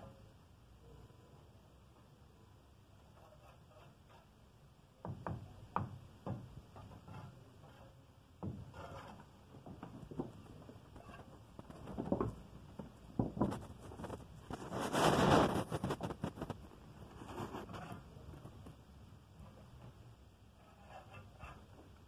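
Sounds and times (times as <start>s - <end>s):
trowel scraping mortar and bricks: 3.1s - 4.4s, 6.7s - 9.4s, 13.6s - 18.2s, 20.6s - 21.7s.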